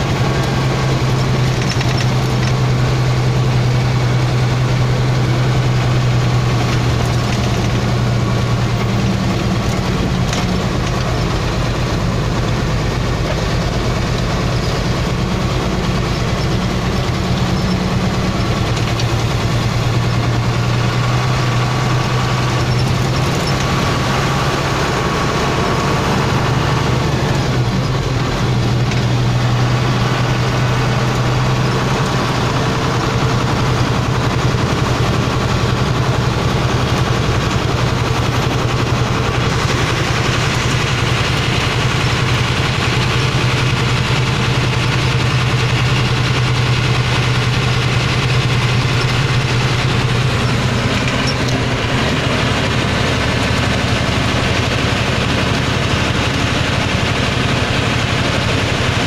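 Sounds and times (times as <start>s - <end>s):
truck diesel engine drone: 0.0s - 59.0s
tyre and road noise: 0.0s - 59.0s.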